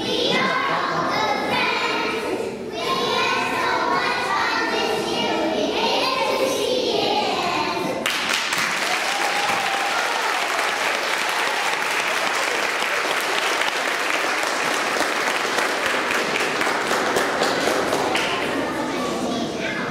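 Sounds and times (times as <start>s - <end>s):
children's voices: 0.0s - 8.1s, 15.5s - 19.9s
audience applause: 8.0s - 18.7s.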